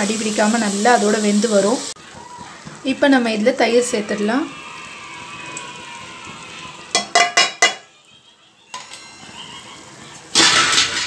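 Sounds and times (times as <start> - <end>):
steel cup knocking on metal pot: 7.0 - 7.9.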